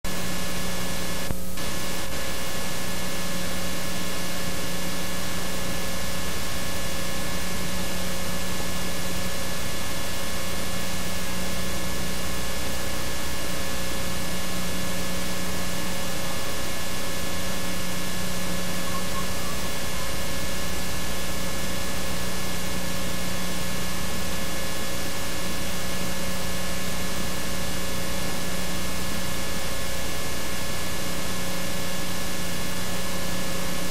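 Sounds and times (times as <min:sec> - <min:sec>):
tape hiss: 0:00.1 - 0:23.4
electrical hum: 0:00.1 - 0:33.9.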